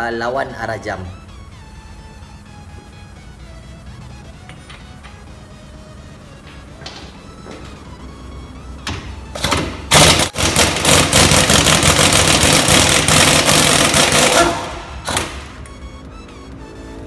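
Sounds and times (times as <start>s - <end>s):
pneumatic impact wrench hammering: 8.8s - 15.6s.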